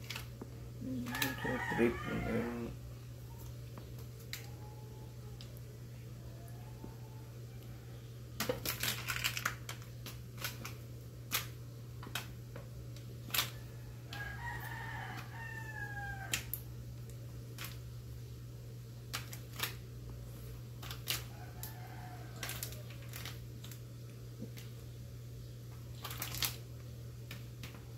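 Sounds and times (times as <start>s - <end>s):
rooster crowing: 0.8s - 2.8s, 13.6s - 16.5s, 21.3s - 23.0s.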